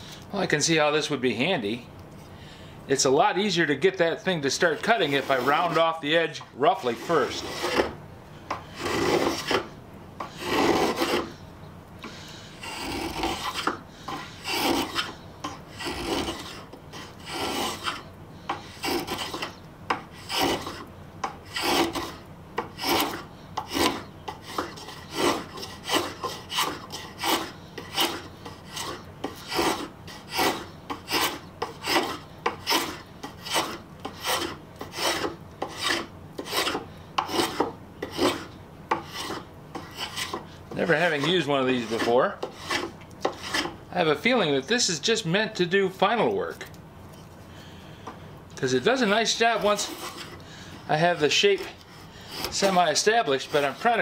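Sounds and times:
spokeshave shaving wood: 4.5s - 6.0s, 6.6s - 8.0s, 8.6s - 11.4s, 12.0s - 43.8s, 48.9s - 54.0s.

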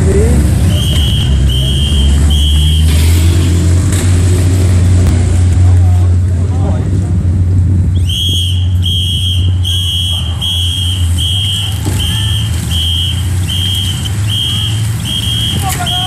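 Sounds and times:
loud low hum: 0.0s - 16.0s.

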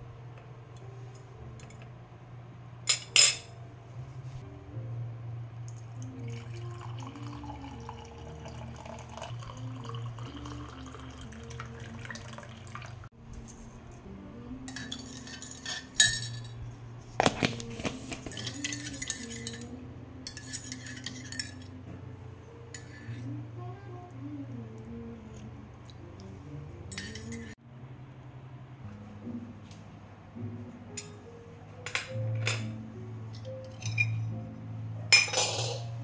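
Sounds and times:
low steady hum: 0.0s - 36.0s
soft background music: 0.0s - 36.0s
liquid pouring: 5.7s - 13.1s
mug and cutlery clinking: 14.7s - 16.6s, 17.2s - 19.7s, 20.3s - 21.7s, 26.9s - 27.6s, 33.7s - 34.2s, 35.1s - 35.9s
spoon rattling in mug: 18.2s - 19.7s.

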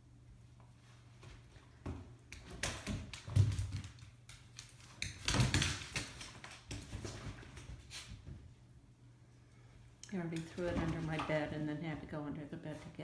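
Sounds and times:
toy and paws thumping on wood floor: 1.2s - 8.5s.

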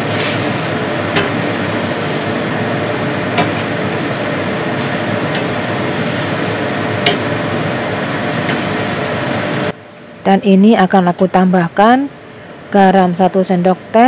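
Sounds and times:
meat sizzling in a wok: 0.0s - 9.2s.

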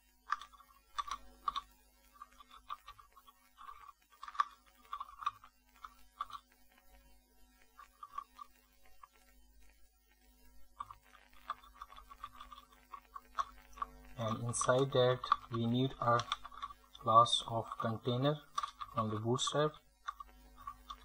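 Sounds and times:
faint steady hum: 0.0s - 21.0s
computer keyboard typing: 17.8s - 21.0s.

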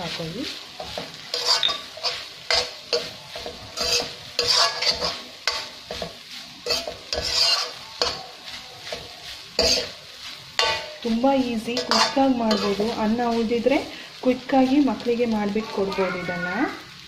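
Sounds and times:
faint frying sizzle: 0.0s - 17.0s
metal ladle scraping a pan: 0.8s - 14.2s.

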